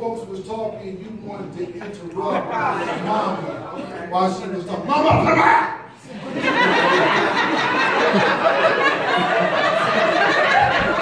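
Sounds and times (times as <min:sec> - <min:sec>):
audience laughing: 0:01.7 - 0:04.2, 0:06.0 - 0:11.0.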